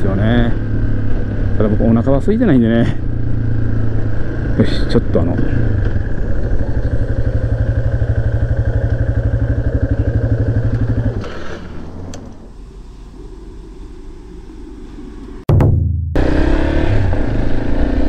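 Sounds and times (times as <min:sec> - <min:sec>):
motorcycle engine idling: 0:00.2 - 0:11.2.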